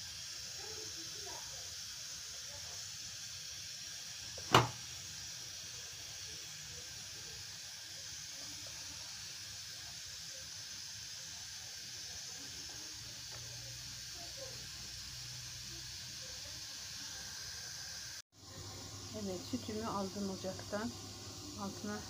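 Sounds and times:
boiled milk foam hissing: 0:00.0 - 0:22.0
sharp click: 0:04.4 - 0:04.8.

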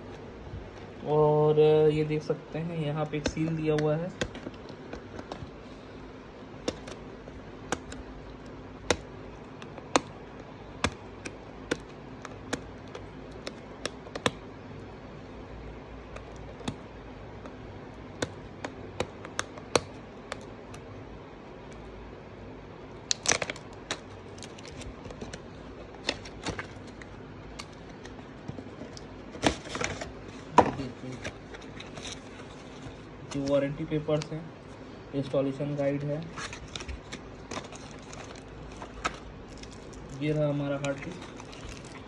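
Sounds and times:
faint steady hum: 0:00.0 - 0:42.0
packaging crackle: 0:23.1 - 0:28.2, 0:36.2 - 0:42.0.

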